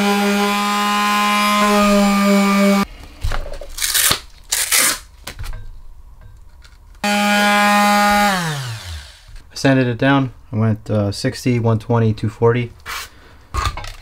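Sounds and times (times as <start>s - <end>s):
palm sander running: 0.0s - 2.8s, 7.0s - 9.4s.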